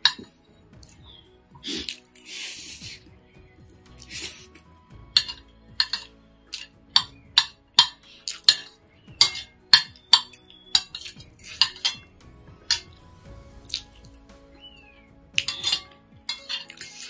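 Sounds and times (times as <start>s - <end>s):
fork and spoon clinking on plate: 7.8s - 12.1s, 15.4s - 17.0s.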